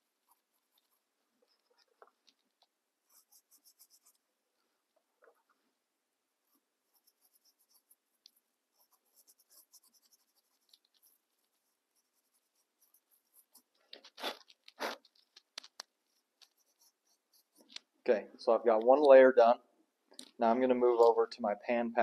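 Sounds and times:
bristle brush scrubbing: 0:06.5 - 0:15.4, 0:16.0 - 0:17.7.

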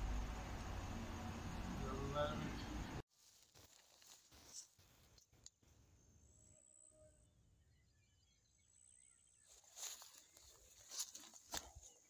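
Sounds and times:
distant bird chirps: 0:05.1 - 0:12.0.

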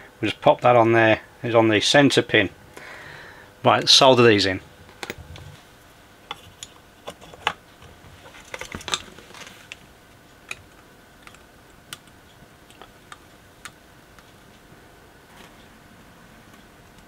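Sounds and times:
small clicks and taps: 0:11.2 - 0:14.4.

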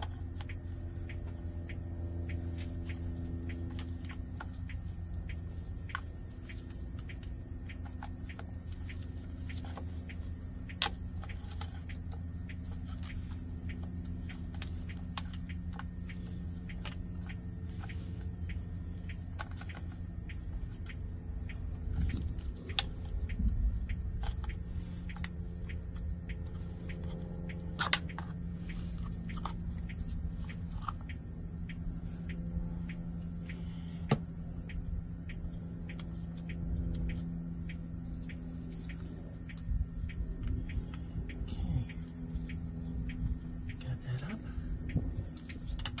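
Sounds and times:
sharp plastic clacks: 0:00.0 - 0:46.0
steady low hum: 0:00.0 - 0:46.0
plastic parts clicking: 0:02.5 - 0:31.1, 0:44.9 - 0:46.0.

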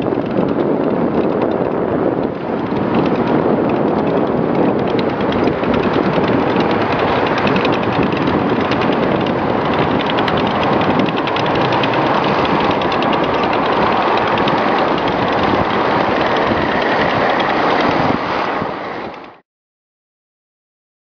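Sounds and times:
tank tracks clattering: 0:00.0 - 0:19.3
tank engines running: 0:00.0 - 0:19.4.

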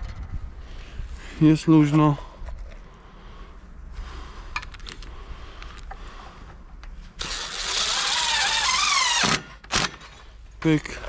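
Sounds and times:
cordless drill whining: 0:07.2 - 0:10.1.

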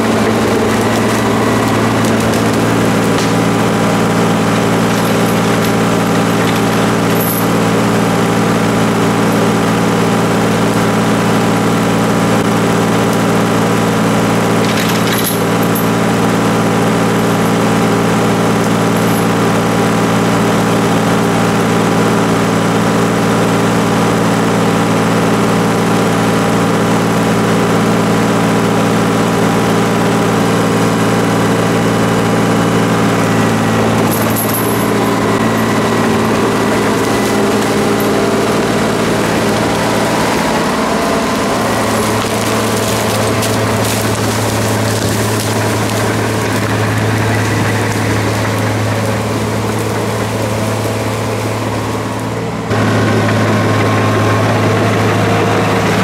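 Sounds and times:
bulldozer diesel engine running: 0:00.0 - 0:56.0
metallic clank: 0:00.1 - 0:08.0.

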